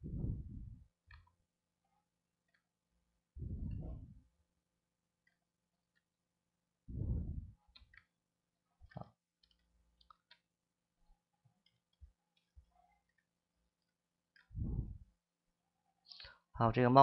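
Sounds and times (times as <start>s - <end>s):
mouse and keyboard clicks: 8.8s - 10.5s.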